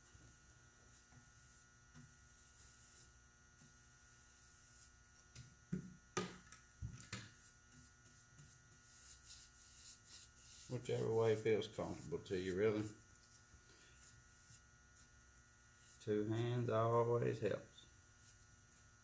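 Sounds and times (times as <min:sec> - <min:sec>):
faint room hum: 0:00.0 - 0:19.0
paintbrush knocking against can: 0:05.3 - 0:08.6
brush strokes on wood: 0:07.3 - 0:19.0.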